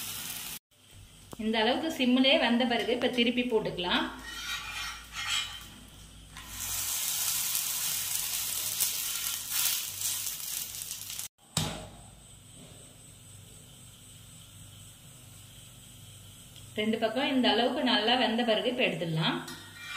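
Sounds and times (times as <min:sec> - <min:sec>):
flatbread sizzling in oil: 0:00.0 - 0:00.6, 0:04.2 - 0:11.4.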